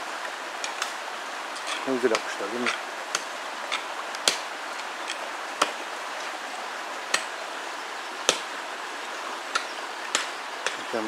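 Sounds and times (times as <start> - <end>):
steady hiss: 0.0 - 11.0
sharp knocks: 8.3 - 8.5.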